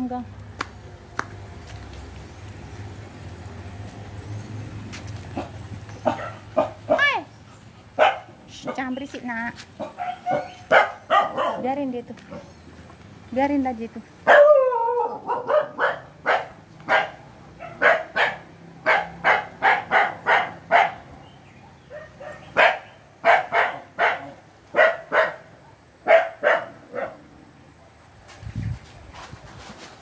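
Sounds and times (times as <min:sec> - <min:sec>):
dog barking: 0:05.4 - 0:07.2, 0:08.0 - 0:08.8, 0:09.8 - 0:12.5, 0:14.3 - 0:27.3.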